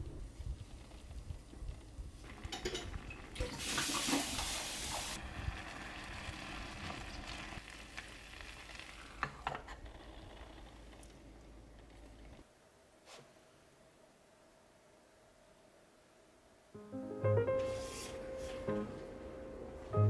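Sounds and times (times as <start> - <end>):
rice and broth sizzling in a pot: 2.3 - 9.7.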